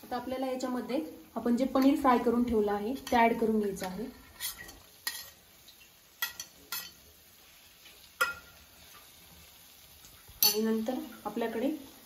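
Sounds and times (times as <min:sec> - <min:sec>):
spoon clinking against metal pan: 0:06.2 - 0:07.0, 0:08.2 - 0:08.5, 0:10.4 - 0:10.8.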